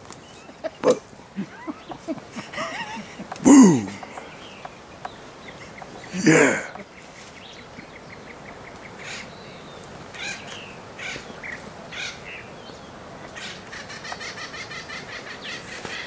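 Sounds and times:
rapid chattering bird call: 0:00.4 - 0:09.3, 0:13.4 - 0:16.0
harsh caw-like bird calls: 0:01.8 - 0:07.0, 0:10.1 - 0:12.4, 0:13.4 - 0:16.0.

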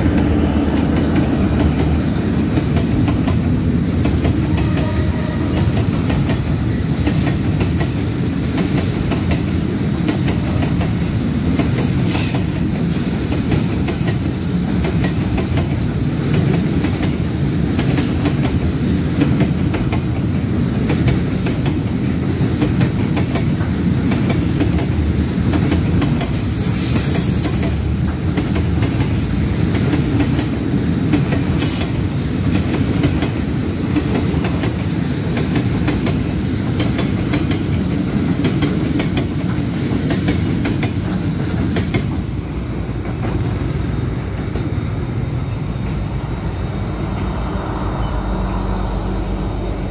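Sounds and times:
clickety-clack over rail joints: 0:00.0 - 0:44.8
freight wagons rumbling on rails: 0:00.0 - 0:49.9
high wheel squeals: 0:26.4 - 0:28.0, 0:43.7 - 0:49.9.

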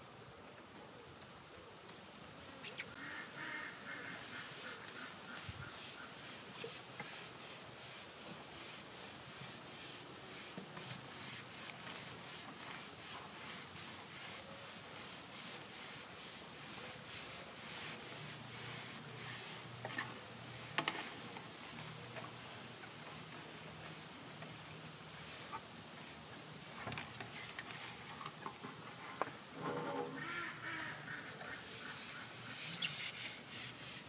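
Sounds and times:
rhythmic rubbing strokes: 0:03.8 - 0:19.6, 0:31.5 - 0:34.0.

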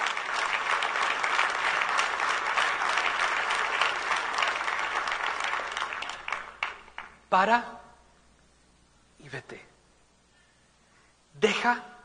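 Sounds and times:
crowd clapping: 0:00.0 - 0:07.2.

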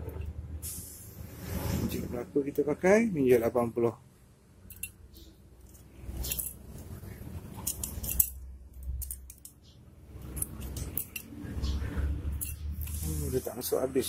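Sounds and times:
small metal parts clicking: 0:04.6 - 0:11.7, 0:12.3 - 0:13.0.

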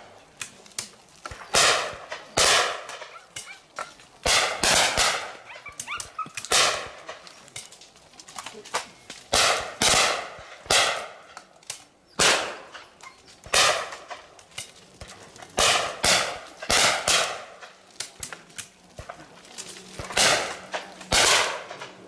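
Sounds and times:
faint distant shots: 0:01.2 - 0:03.4, 0:04.2 - 0:05.7, 0:06.4 - 0:07.3, 0:09.3 - 0:11.4, 0:12.2 - 0:12.8, 0:13.4 - 0:14.3, 0:15.0 - 0:18.3, 0:19.9 - 0:22.0
shotgun shots: 0:01.5 - 0:03.1, 0:04.2 - 0:05.5, 0:06.5 - 0:07.1, 0:09.3 - 0:11.2, 0:12.2 - 0:12.7, 0:13.4 - 0:14.1, 0:15.6 - 0:17.6, 0:20.0 - 0:21.9.

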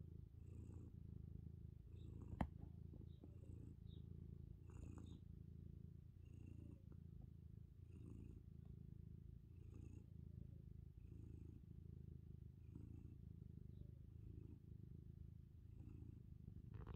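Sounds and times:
cat purring: 0:00.0 - 0:16.9.

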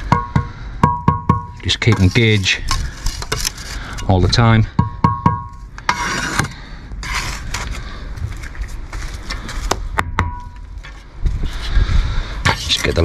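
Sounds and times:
trowel scraping mortar: 0:01.8 - 0:04.2, 0:05.8 - 0:07.8.

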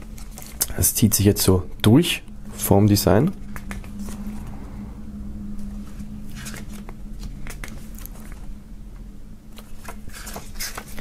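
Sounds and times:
paper pages rustling: 0:00.0 - 0:00.7, 0:03.4 - 0:04.3, 0:05.6 - 0:08.5, 0:09.5 - 0:11.0
steady low hum: 0:00.0 - 0:11.0.

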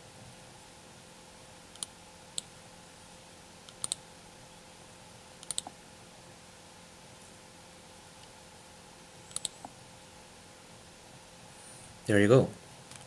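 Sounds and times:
faint steady hum: 0:00.0 - 0:13.0
computer mouse clicking: 0:01.7 - 0:02.5, 0:03.6 - 0:04.0, 0:05.4 - 0:05.8, 0:09.3 - 0:09.8.

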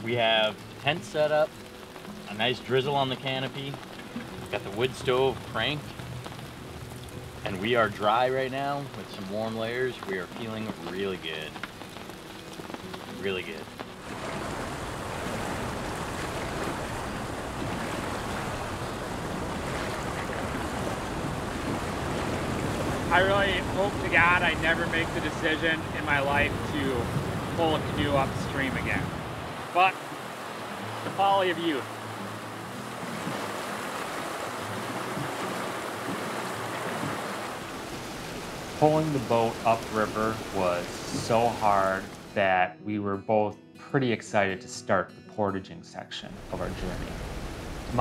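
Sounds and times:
river water rushing over rocks: 0:00.0 - 0:42.3
wind on microphone: 0:14.0 - 0:29.7.

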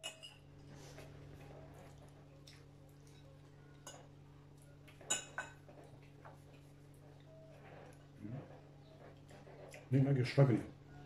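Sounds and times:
forks clinking on plates: 0:00.0 - 0:00.5, 0:04.9 - 0:05.8.

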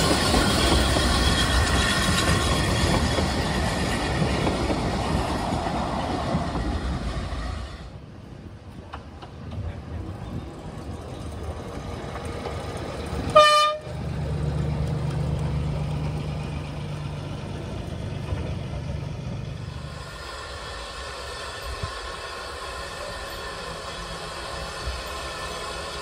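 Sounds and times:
locomotive horn toot: 0:13.3 - 0:14.0.

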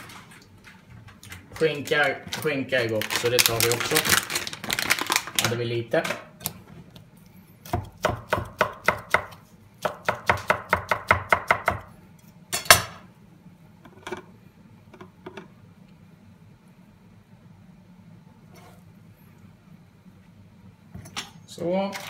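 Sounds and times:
knife chopping on cutting board: 0:07.6 - 0:11.9.

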